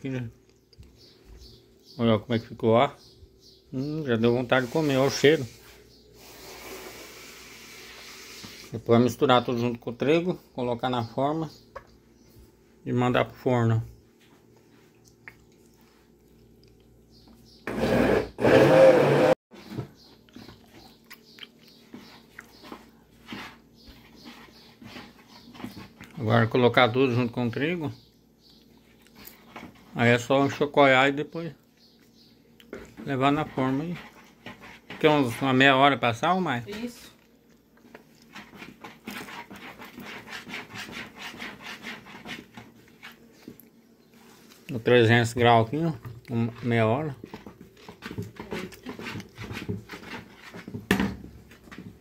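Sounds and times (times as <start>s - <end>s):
batter stirred in plastic bowl: 4.0s - 9.6s, 21.7s - 27.8s, 32.7s - 52.0s
electric blender running: 17.7s - 19.4s.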